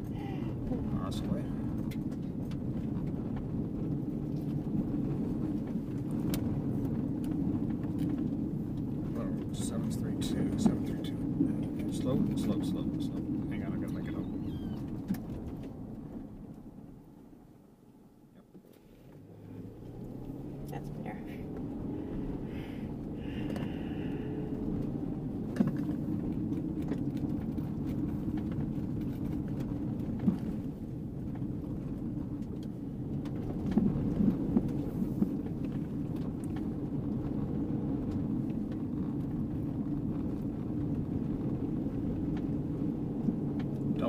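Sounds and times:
car engine and tyre rumble on gravel: 0.0 - 44.0.

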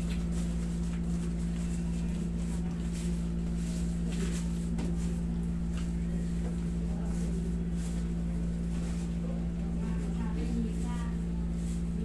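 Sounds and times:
air conditioner humming: 0.0 - 12.0.

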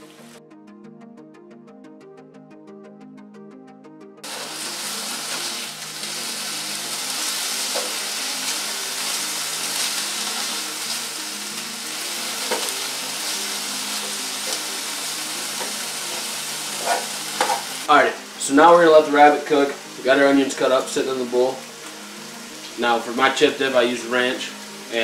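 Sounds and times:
meat sizzling in a pan: 4.2 - 25.0
spatula scraping a pan: 15.6 - 17.8.

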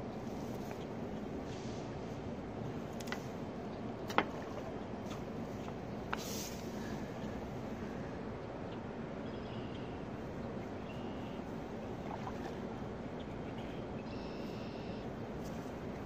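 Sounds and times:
wind: 0.0 - 16.0
faint high chirps: 14.0 - 15.1.

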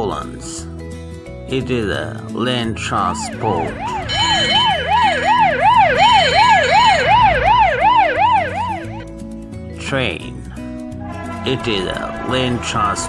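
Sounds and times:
ambulance siren yelping: 3.1 - 9.0.

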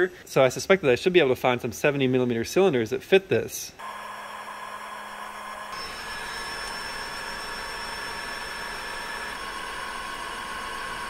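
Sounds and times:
heat gun blowing air: 3.8 - 11.0.

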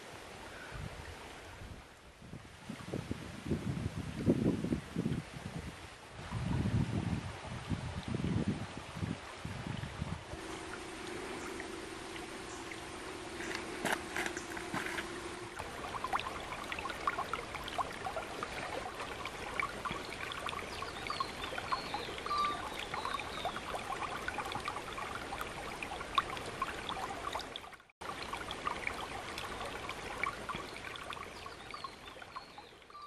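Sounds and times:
river water babbling over rocks: 10.3 - 33.0.

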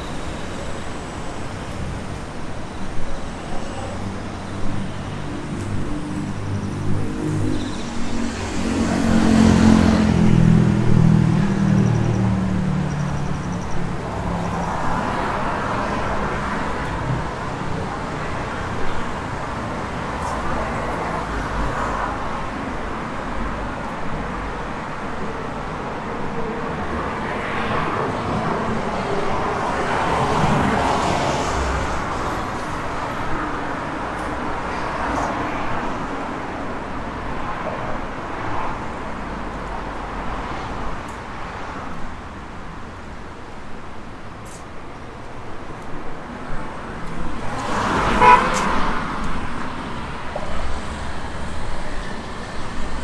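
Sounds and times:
traffic hiss: 0.0 - 5.9, 41.8 - 46.0.

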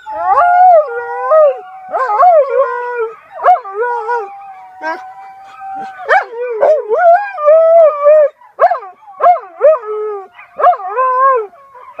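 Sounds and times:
wolf and dog howling: 0.0 - 12.0.

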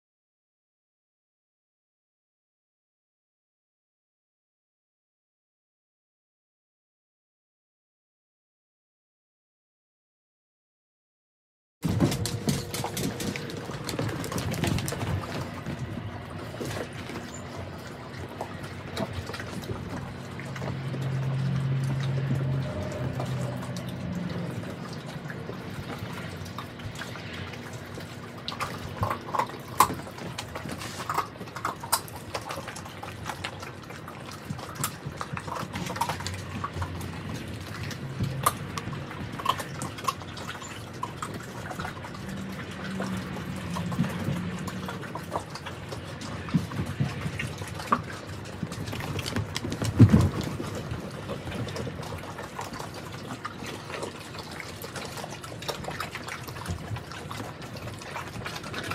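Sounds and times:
dogs chewing and slurping: 11.8 - 58.9.

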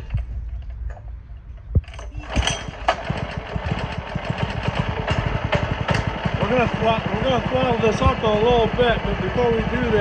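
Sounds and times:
pull-start knock: 1.8 - 6.7
small gas engine running: 2.0 - 10.0.

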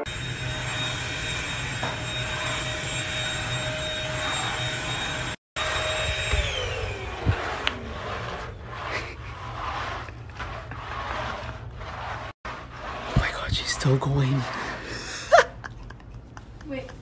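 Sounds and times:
vacuum motor winding down: 0.0 - 9.8
vacuum cleaner whining: 0.0 - 15.5.

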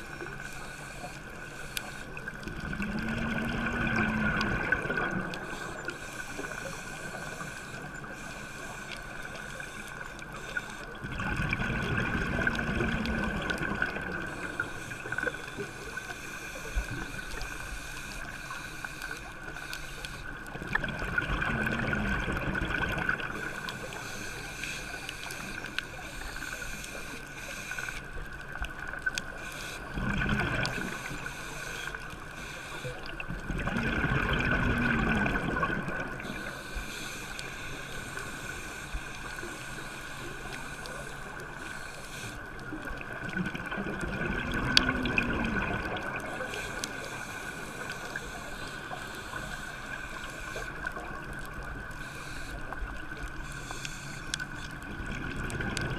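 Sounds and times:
constant high hum: 0.0 - 55.9
faint clicks: 0.0 - 55.9
gurgling exhaled bubbles underwater: 2.2 - 8.2, 10.1 - 16.0, 20.3 - 24.0, 28.3 - 31.4, 32.8 - 36.6, 42.5 - 52.0, 54.3 - 55.9.

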